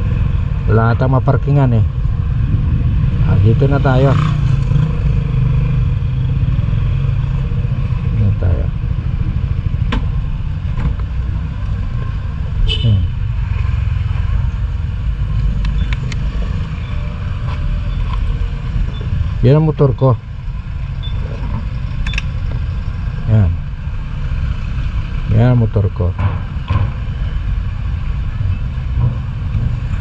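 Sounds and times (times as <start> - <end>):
sharp clicks and knocks: 9.8 - 10.1, 26.1 - 27.1.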